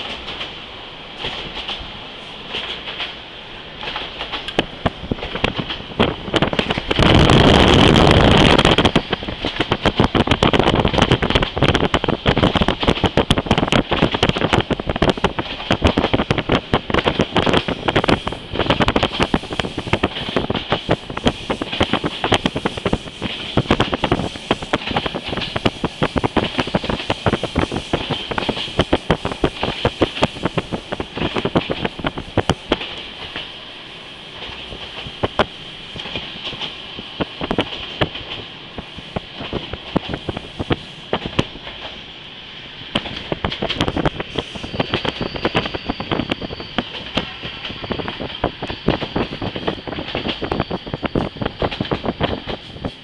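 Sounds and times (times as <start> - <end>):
steady rushing hiss: 0.0 - 53.0
train wheels clattering on track: 0.0 - 53.0.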